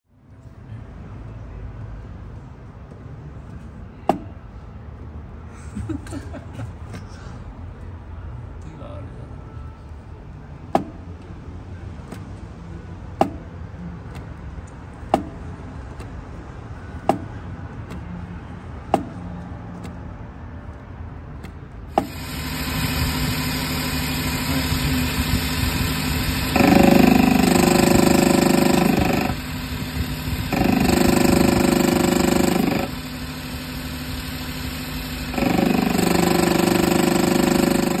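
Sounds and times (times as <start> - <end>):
engine running: 9.4 - 38.0
harsh grinding noise: 21.9 - 38.0.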